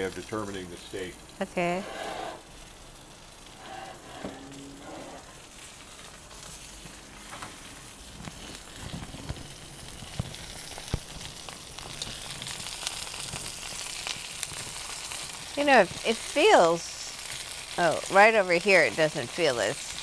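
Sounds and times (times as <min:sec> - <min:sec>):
steak sizzling in a pan: 0:00.0 - 0:20.0.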